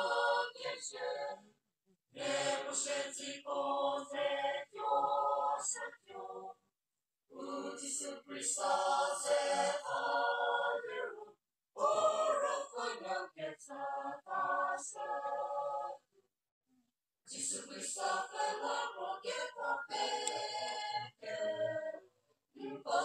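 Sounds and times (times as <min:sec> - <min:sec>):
mixed choir singing: 0:00.0 - 0:01.4, 0:02.2 - 0:06.6, 0:07.3 - 0:16.0, 0:17.3 - 0:23.0.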